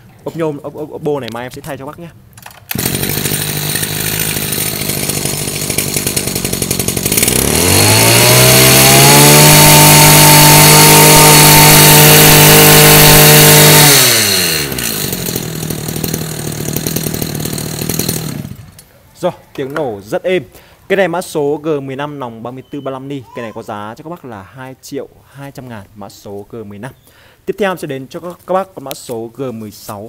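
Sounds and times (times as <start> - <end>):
brush cutter engine revving: 2.7 - 18.9.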